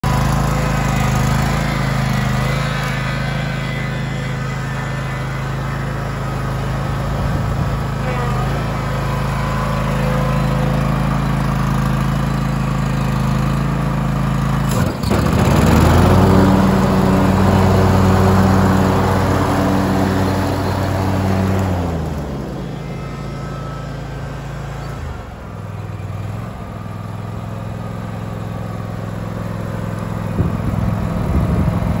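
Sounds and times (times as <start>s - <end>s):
garden tractor engine running: 0.0s - 32.0s
rushing whir: 14.6s - 25.8s.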